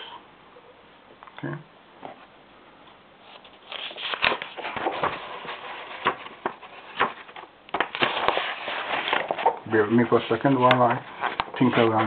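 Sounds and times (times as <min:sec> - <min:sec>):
paper pages rustling: 0:03.2 - 0:12.0
sharp paper crinkles: 0:03.3 - 0:12.0.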